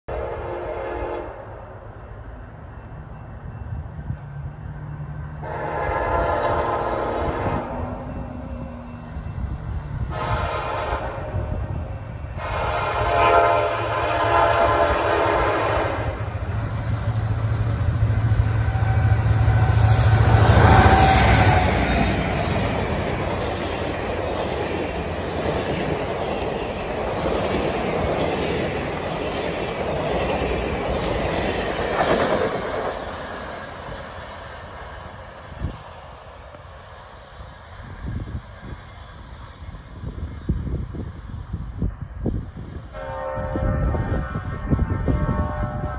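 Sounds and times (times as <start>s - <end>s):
locomotive air horn blasts: 0.1s - 1.4s, 5.4s - 8.0s, 10.1s - 11.6s, 12.4s - 16.3s, 18.5s - 22.0s, 42.9s - 45.9s
deep locomotive engine rumble: 0.1s - 45.9s
train wheels on rails: 0.2s - 45.9s.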